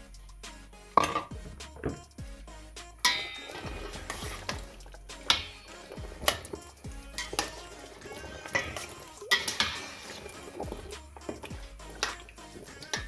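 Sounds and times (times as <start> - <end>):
metal spoon scraping a pot: 3.0 - 13.0.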